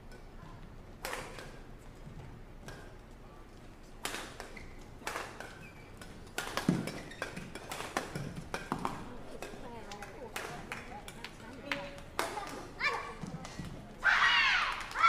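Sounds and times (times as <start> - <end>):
rackets hitting shuttlecock: 1.0 - 1.7, 2.6 - 3.0, 4.0 - 13.8.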